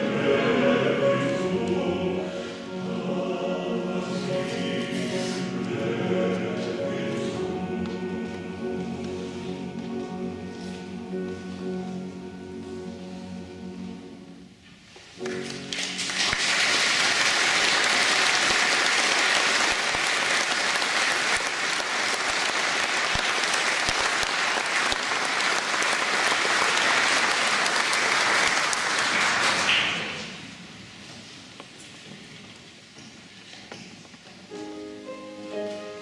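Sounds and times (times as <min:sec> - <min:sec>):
choir singing: 0:00.0 - 0:14.4
audience applauding: 0:15.4 - 0:30.4.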